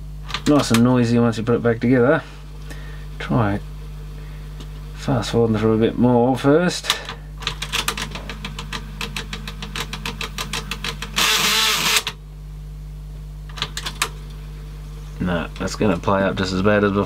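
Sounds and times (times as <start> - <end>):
cassette deck fast-forwarding clicks: 6.9 - 12.2, 13.5 - 14.2.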